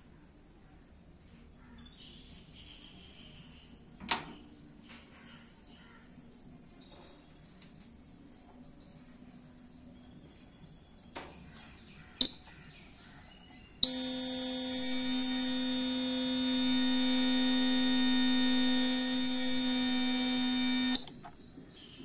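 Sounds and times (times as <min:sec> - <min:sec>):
high-pitched alarm buzzer: 0:13.8 - 0:21.1.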